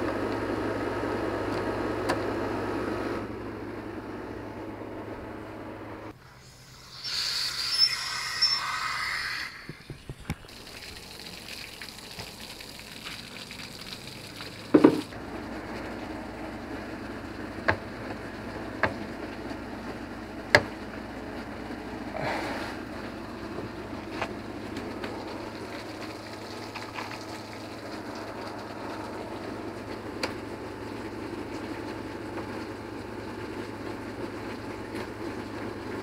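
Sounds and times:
water spraying and splashing: 0:06.4 - 0:15.2, 0:24.0 - 0:30.0.

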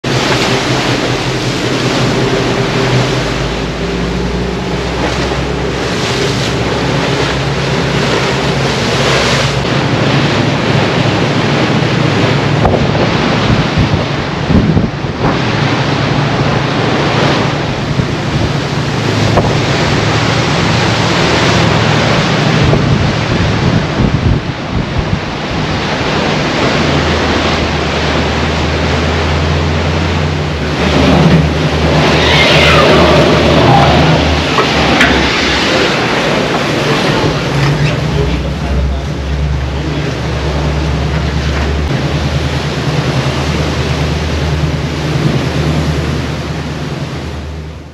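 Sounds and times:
wind buffeting microphone: 0:00.0 - 0:47.4
low boat engine drone: 0:00.0 - 0:47.9
bow wave and spray rushing: 0:25.5 - 0:46.8.

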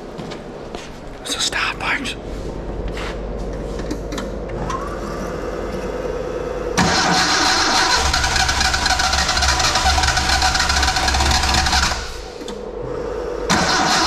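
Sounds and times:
car engine running: 0:05.5 - 0:14.0
starter motor whirring: 0:06.8 - 0:12.5, 0:13.5 - 0:14.0.

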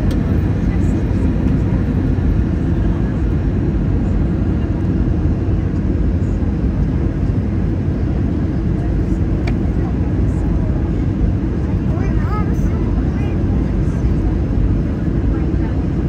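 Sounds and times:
airliner cabin engine rumble: 0:00.0 - 0:16.0.

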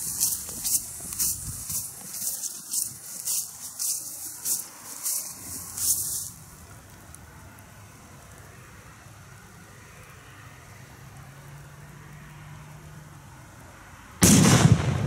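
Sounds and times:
firecracker bang: 0:14.2 - 0:15.0.

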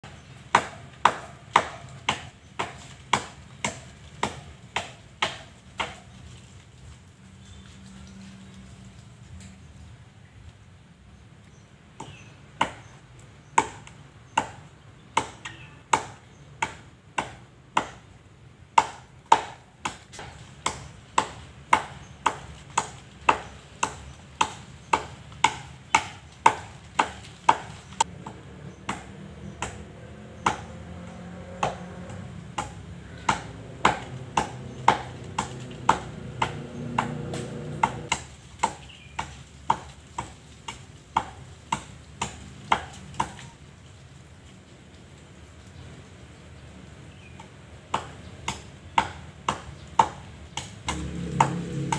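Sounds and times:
blade chopping palm trunk: 0:00.1 - 0:06.1, 0:18.8 - 0:43.5, 0:47.9 - 0:51.9.

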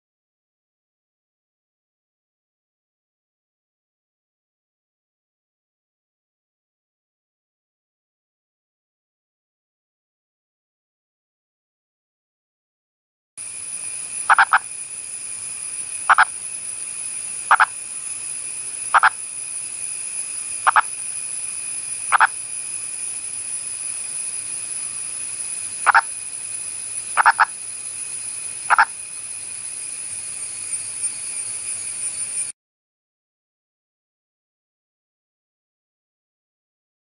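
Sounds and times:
high-pitched hiss: 0:13.4 - 0:32.6
frog calling: 0:14.2 - 0:14.8, 0:16.0 - 0:16.4, 0:17.4 - 0:17.8, 0:18.9 - 0:19.3, 0:20.6 - 0:21.0, 0:22.0 - 0:22.4, 0:25.8 - 0:26.2, 0:27.1 - 0:27.6, 0:28.6 - 0:29.0.

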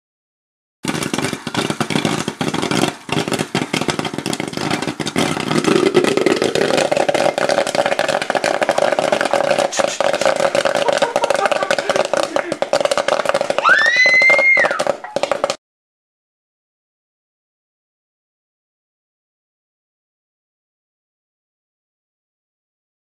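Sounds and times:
popcorn popping in a covered pot: 0:00.8 - 0:15.6.

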